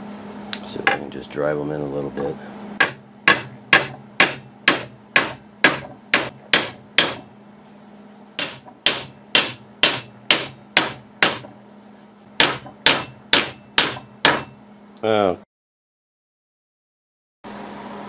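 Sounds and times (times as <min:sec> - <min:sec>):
hammer tapping steel punch: 0:02.8 - 0:07.3, 0:08.4 - 0:11.6, 0:12.4 - 0:14.6.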